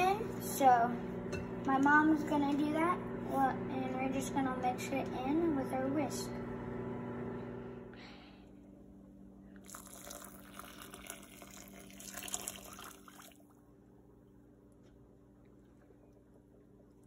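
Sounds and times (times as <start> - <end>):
steady low hum: 0.0 - 17.0
water pouring and splashing into bowl: 9.6 - 13.5.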